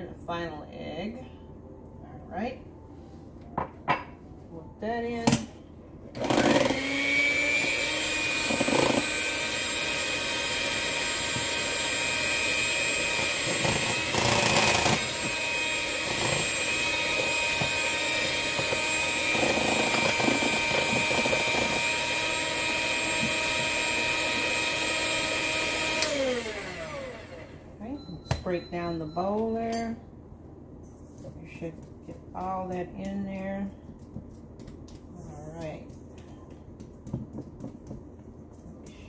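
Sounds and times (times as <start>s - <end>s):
electric hand mixer whining: 6.2s - 27.7s.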